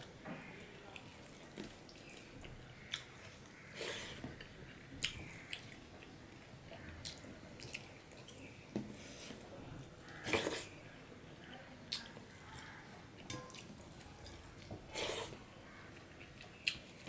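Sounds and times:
close chewing: 0:11.9 - 0:17.0.

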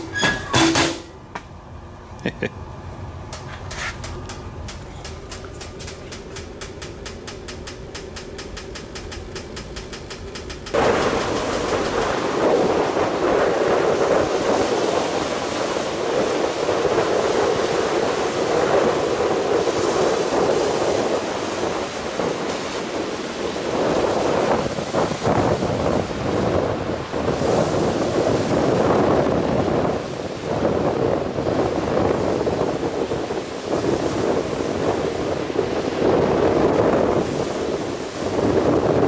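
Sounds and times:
faint fan hum: 0:00.9 - 0:15.0
stove fan rapid ticking: 0:04.2 - 0:12.2
wind buffeting microphone: 0:04.2 - 0:39.0
surf breaking on pebble beach: 0:10.7 - 0:29.4.

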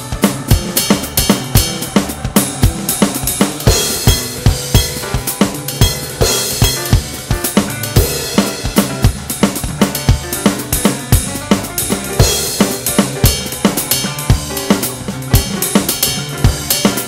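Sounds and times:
cymbal crashes: 0:00.0 - 0:11.2
electronic drum kit playing: 0:00.0 - 0:17.0
rock band recording: 0:00.0 - 0:17.0.

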